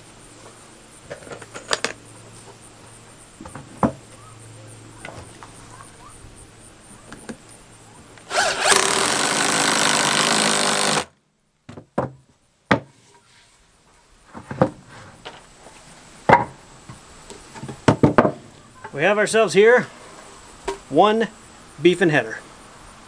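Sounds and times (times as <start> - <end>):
cordless drill driving a screw: 8.3 - 11.1
wooden boards knocking: 11.7 - 12.9, 16.3 - 16.6, 17.6 - 18.4.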